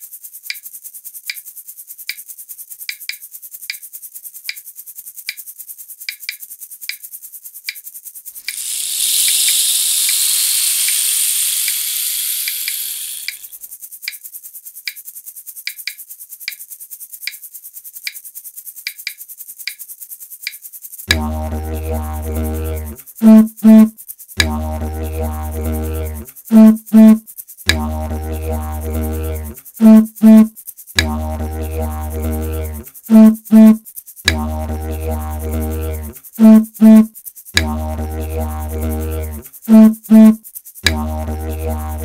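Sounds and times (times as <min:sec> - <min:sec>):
insect buzzing: 0:08.4 - 0:13.6, 0:21.1 - 0:42.0
didgeridoo drone: 0:08.6 - 0:13.3, 0:21.1 - 0:23.8, 0:24.4 - 0:26.8, 0:27.7 - 0:29.6, 0:31.0 - 0:33.4, 0:34.3 - 0:36.2, 0:37.6 - 0:39.4, 0:40.9 - 0:42.0.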